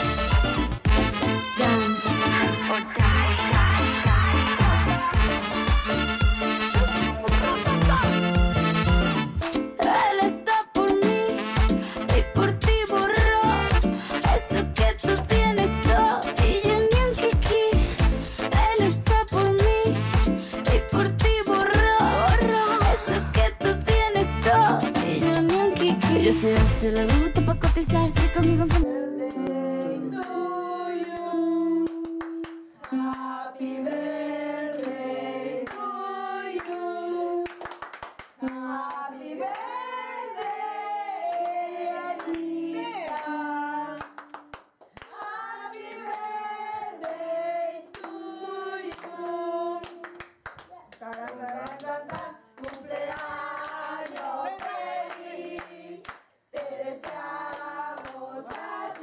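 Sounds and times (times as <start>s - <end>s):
hands clapping: 3.4s - 10.0s, 10.9s - 29.5s, 31.0s - 33.3s, 34.7s - 35.0s, 35.6s - 35.9s, 36.6s - 36.8s, 37.4s - 39.7s, 42.2s - 42.4s, 43.0s - 43.3s, 44.0s - 46.4s, 47.9s - 48.2s, 48.9s - 59.0s
group singing a birthday song: 21.0s - 26.5s, 28.8s - 37.6s, 38.4s - 44.2s, 45.0s - 50.2s, 51.0s - 59.0s.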